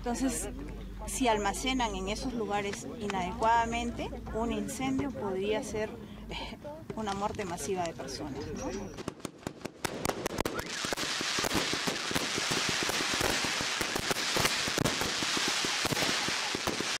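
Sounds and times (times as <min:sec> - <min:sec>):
dense crackling: 0:07.0 - 0:17.0
firecracker cracks: 0:09.0 - 0:17.0
hiss of burning fireworks: 0:09.0 - 0:17.0.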